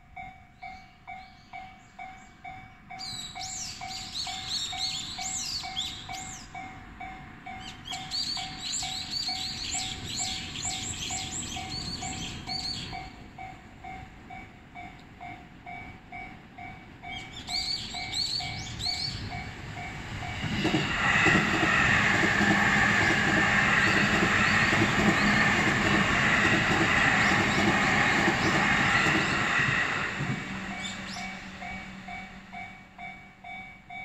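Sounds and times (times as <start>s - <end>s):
level-crossing bell ringing: 0.0s - 20.6s, 29.1s - 34.0s
electric train passing: 0.0s - 34.0s
birds chirping: 17.0s - 19.5s, 23.0s - 32.2s
train wheels clattering over rail joints: 19.3s - 32.2s.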